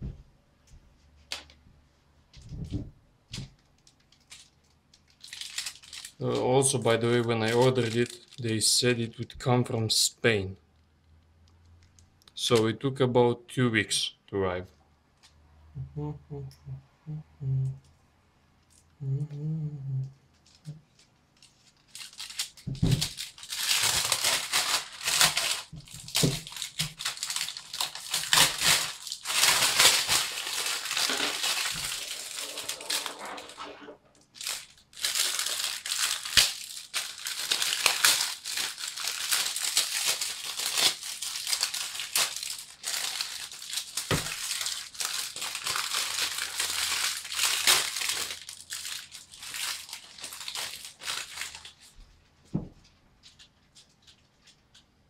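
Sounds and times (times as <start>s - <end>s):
plastic packaging crinkling: 3.3s - 9.1s, 20.3s - 52.0s.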